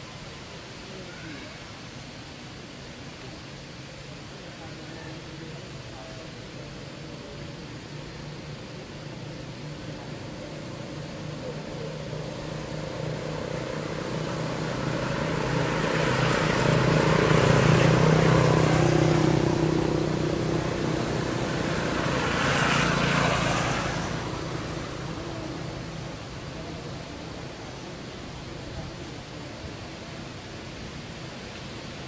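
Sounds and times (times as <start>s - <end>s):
vehicle passing: 6.4s - 28.7s.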